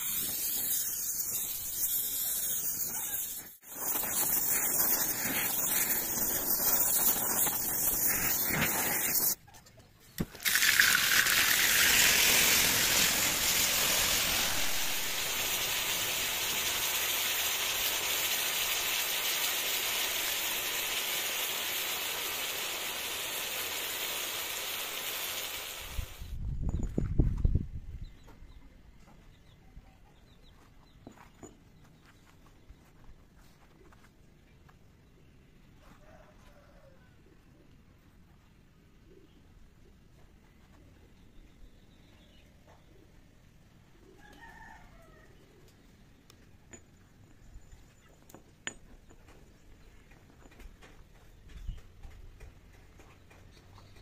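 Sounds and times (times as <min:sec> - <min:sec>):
gas torch flame hissing: 0:00.0 - 0:09.4, 0:10.4 - 0:26.3
hot metal sizzling in oil: 0:00.0 - 0:09.4, 0:10.4 - 0:26.3.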